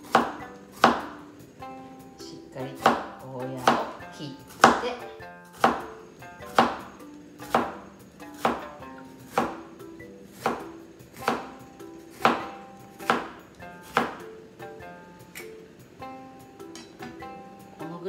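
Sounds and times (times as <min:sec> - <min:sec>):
knife chopping on cutting board: 0:00.0 - 0:01.2, 0:02.8 - 0:04.0, 0:04.6 - 0:04.9, 0:05.6 - 0:09.6, 0:10.4 - 0:14.3.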